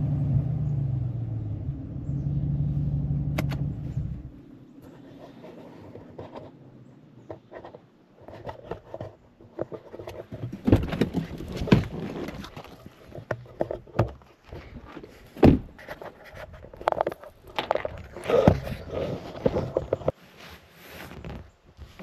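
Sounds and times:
knocks and rustling: 7.2 - 20.2.

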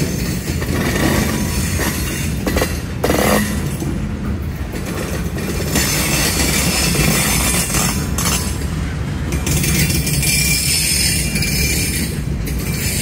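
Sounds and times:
sharp knocks of train cars: 0.0 - 10.4
freight train wheels rumbling on rails: 0.0 - 13.0.

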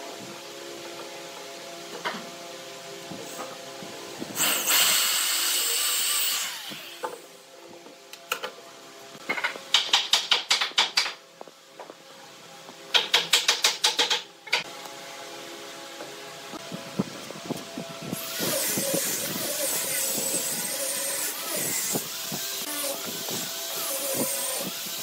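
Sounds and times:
cordless drill boring into wood: 4.4 - 7.0, 18.2 - 25.0.

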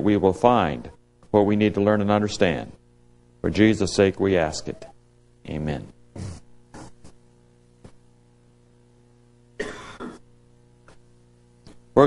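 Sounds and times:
faint electrical hum: 0.0 - 12.0
person coughing: 9.6 - 10.3.

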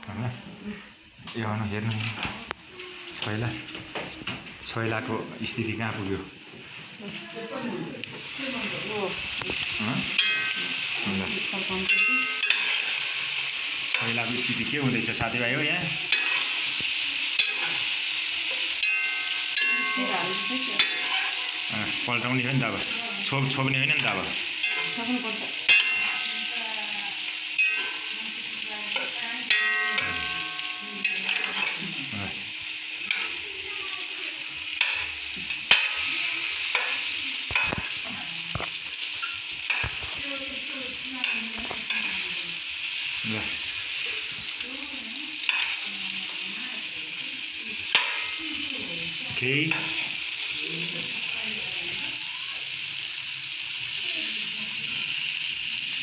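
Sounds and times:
meat sizzling in a frying pan: 0.0 - 56.0
metal spoon scraping a pan: 9.3 - 22.1, 22.7 - 33.5, 34.5 - 44.6, 45.4 - 46.1, 47.8 - 48.7.

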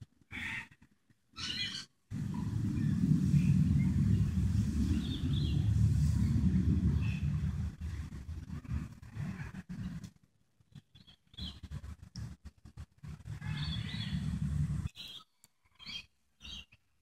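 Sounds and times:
small birds chirping: 1.4 - 7.4, 9.4 - 11.8, 13.3 - 16.9
low rumble on microphone: 2.1 - 10.2, 11.4 - 14.9.

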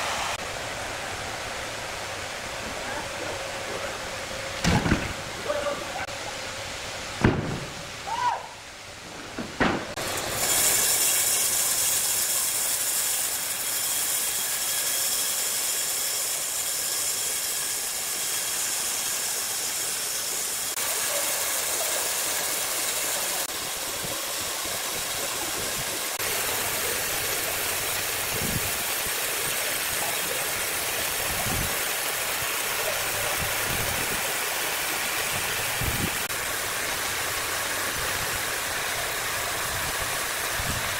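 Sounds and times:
band sawmill running: 0.0 - 8.0, 8.6 - 40.9
timber knocking: 7.2 - 7.9, 9.3 - 10.0.

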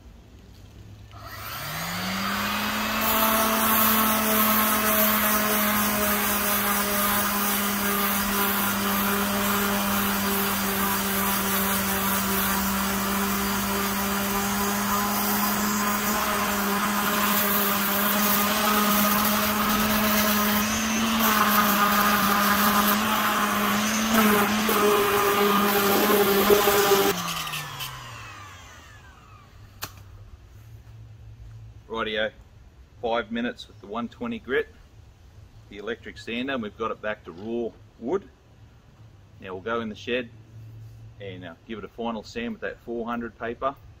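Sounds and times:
palm sander sanding wood: 1.2 - 29.5.

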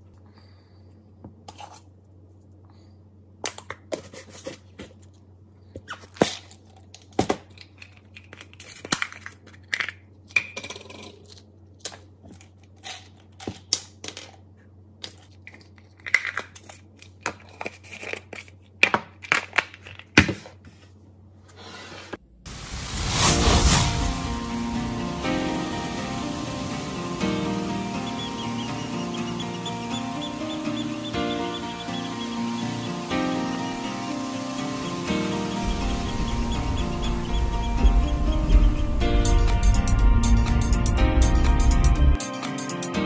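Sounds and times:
low hum: 22.2 - 42.2.

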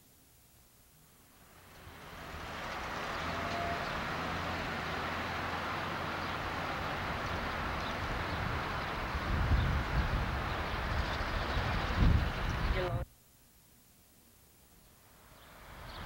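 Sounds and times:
outdoor hiss: 0.0 - 16.0.

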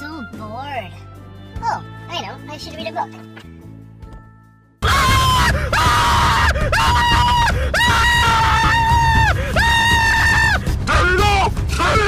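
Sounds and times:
heavy bass: 4.8 - 12.0
man screaming: 4.8 - 12.0.

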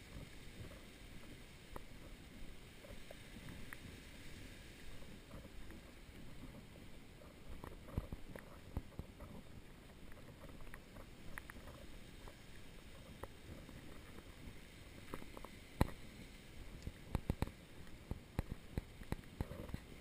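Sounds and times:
wind rumbling on microphone: 0.0 - 20.0
sharp clicks and knocks: 16.8 - 19.8.

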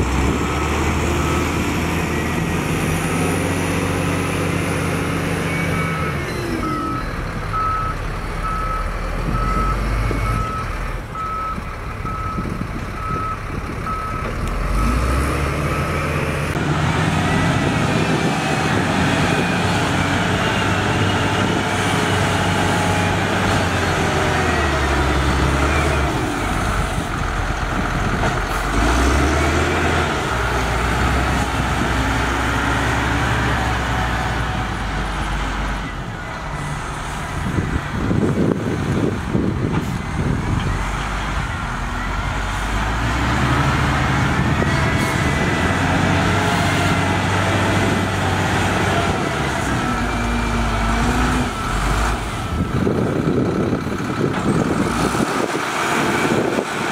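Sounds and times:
wheel loader diesel engine revving: 0.0 - 56.9
reversing alarm beeping: 0.9 - 2.4, 5.3 - 16.2, 49.7 - 53.1.

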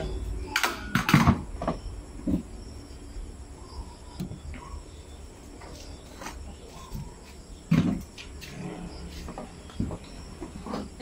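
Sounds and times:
plastic chair knocking: 7.7 - 8.1.

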